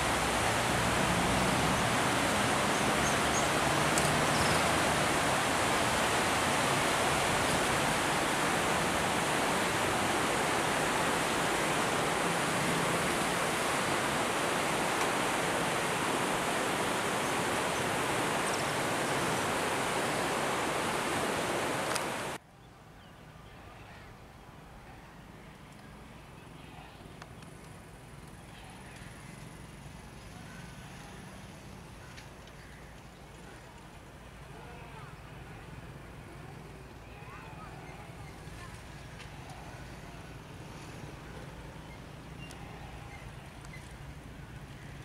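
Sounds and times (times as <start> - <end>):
river water rushing: 0.0 - 22.4.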